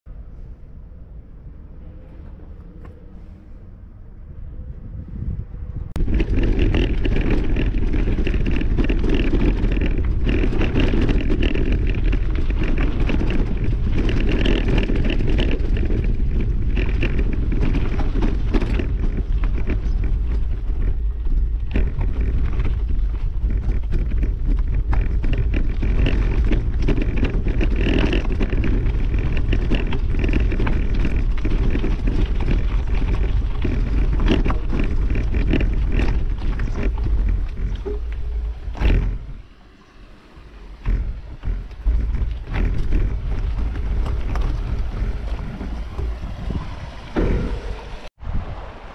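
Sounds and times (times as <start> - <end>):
wind buffeting microphone: 0.1 - 48.9
tyres rumbling over gravel: 5.9 - 48.9
small knocks and rattles: 6.0 - 39.5, 40.8 - 48.1.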